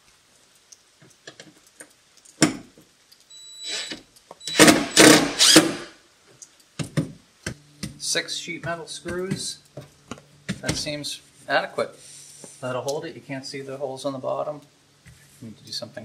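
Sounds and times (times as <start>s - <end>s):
cordless drill whirring: 3.6s - 5.9s.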